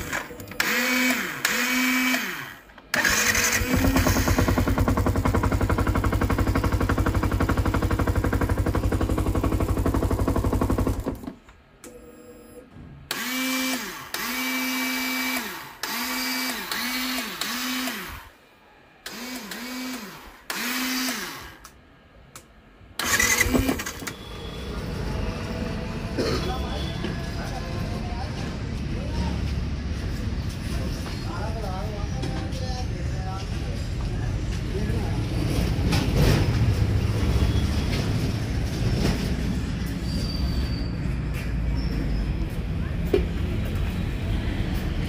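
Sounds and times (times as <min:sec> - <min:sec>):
motorcycle starter motor whirring: 0:00.0 - 0:11.1, 0:23.0 - 0:24.3.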